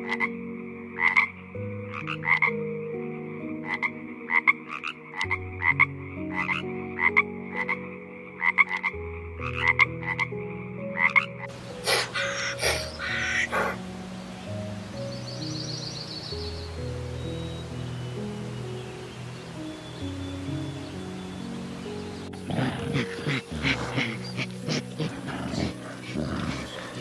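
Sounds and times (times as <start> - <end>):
frogs croaking: 0.0 - 27.0
loud animal call: 11.6 - 13.9, 22.2 - 27.0.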